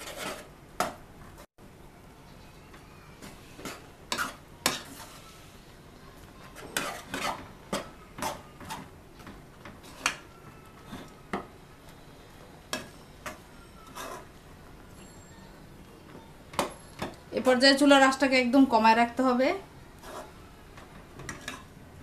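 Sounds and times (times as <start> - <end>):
spoon knocking and scraping pot: 0.0 - 1.0, 3.2 - 5.2, 6.4 - 10.3, 12.7 - 14.4, 16.1 - 17.2, 20.0 - 21.7
spoon mashing thick dough: 2.7 - 5.4, 6.2 - 15.1, 19.9 - 21.7.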